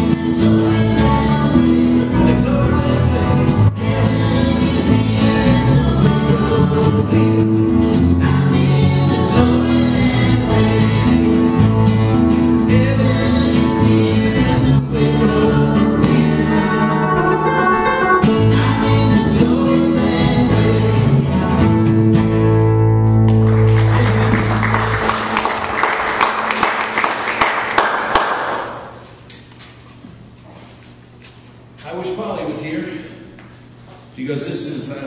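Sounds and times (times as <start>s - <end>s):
voices singing: 0.0s - 11.9s, 12.6s - 21.9s
electric bass: 0.0s - 26.5s
electric guitar: 0.0s - 27.0s
acoustic guitar: 0.0s - 29.6s.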